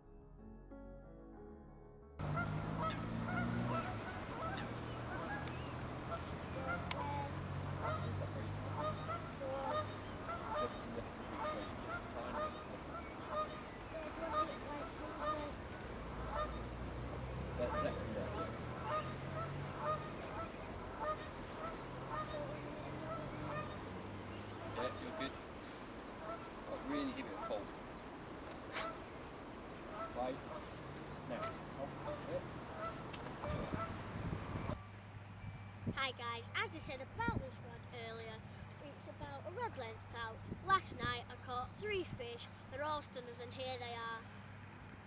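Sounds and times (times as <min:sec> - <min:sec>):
geese honking: 0:02.2 - 0:34.8
low steady hum: 0:02.2 - 0:40.3.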